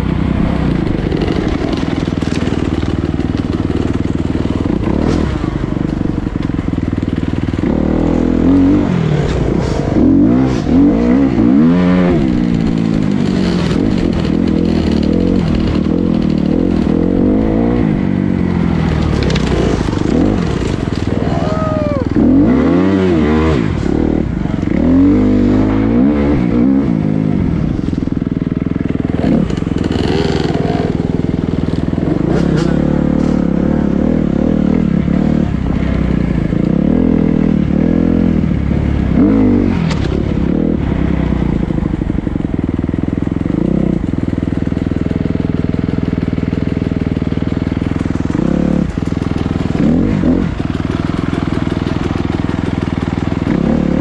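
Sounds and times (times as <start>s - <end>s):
dirt bike engines revving: 0.0s - 44.7s, 46.8s - 54.0s.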